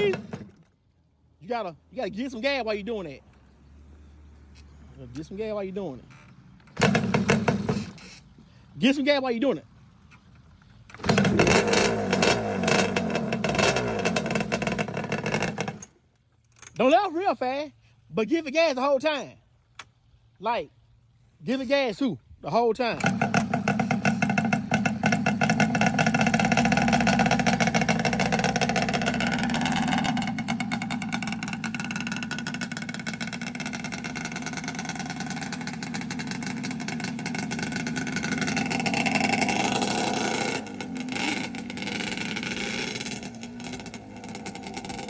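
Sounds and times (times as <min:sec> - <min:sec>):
atv engine revving: 0:00.0 - 0:00.8, 0:04.1 - 0:09.0, 0:10.1 - 0:16.0, 0:22.8 - 0:45.0.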